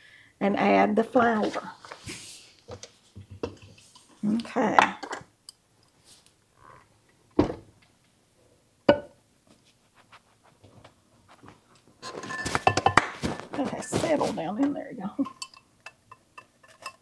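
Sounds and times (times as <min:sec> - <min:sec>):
kitchenware clattering and clinking: 0:02.8 - 0:05.3, 0:12.0 - 0:17.0.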